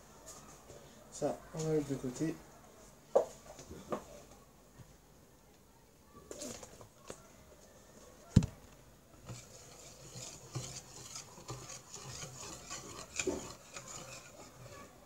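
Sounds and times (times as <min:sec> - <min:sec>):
whisk beating batter in bowl: 0:09.2 - 0:15.0.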